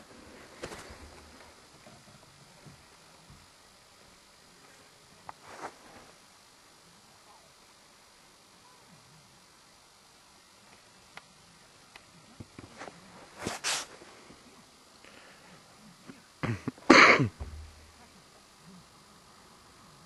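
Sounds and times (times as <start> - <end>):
person coughing: 16.4 - 17.4.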